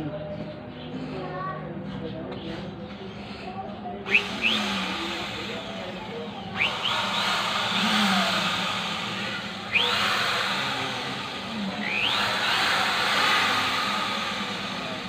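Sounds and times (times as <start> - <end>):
impact drill motor whining: 4.1 - 15.0.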